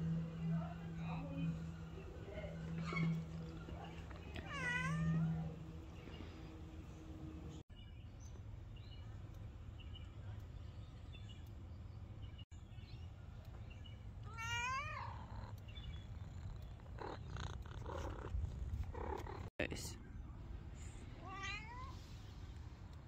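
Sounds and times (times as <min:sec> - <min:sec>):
low steady rumble: 0:00.0 - 0:23.0
cat meowing: 0:04.4 - 0:05.5, 0:14.2 - 0:15.6, 0:21.2 - 0:22.0.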